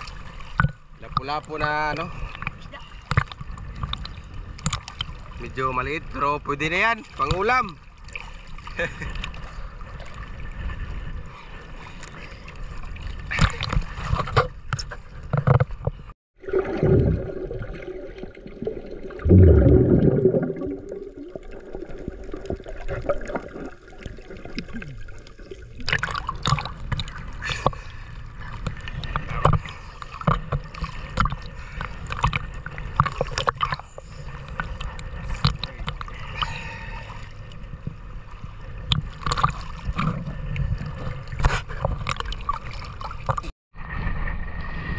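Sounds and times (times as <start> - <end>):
splashes and knocks: 0.0 - 5.3, 13.3 - 36.2, 38.8 - 43.5
water sloshing and gurgling: 0.0 - 44.9.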